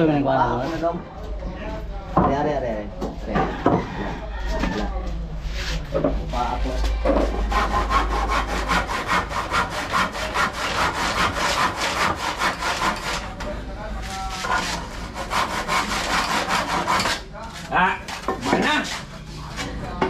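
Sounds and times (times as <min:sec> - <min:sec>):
hand saw cutting wood: 0:07.4 - 0:13.3, 0:14.4 - 0:17.2.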